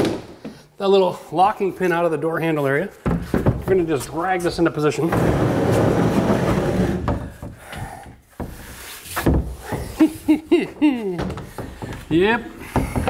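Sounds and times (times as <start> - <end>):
wood knocking against framing: 3.0 - 3.9, 11.2 - 13.0
wooden door scraping across floor: 4.4 - 7.7.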